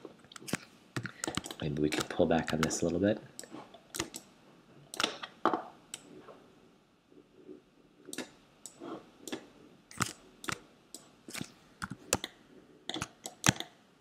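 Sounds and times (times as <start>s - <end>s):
mouse and keyboard clicks: 0.3s - 2.7s, 3.4s - 4.3s, 8.1s - 13.8s.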